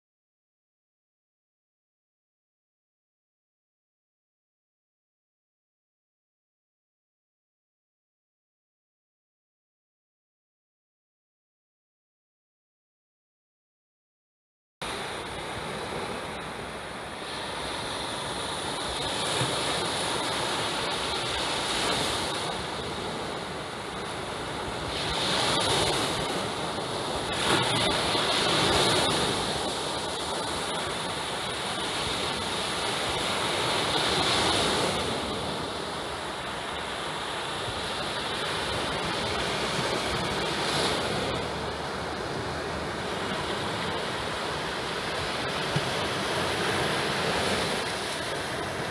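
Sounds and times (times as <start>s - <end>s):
surf breaking on beach: 14.8s - 48.9s.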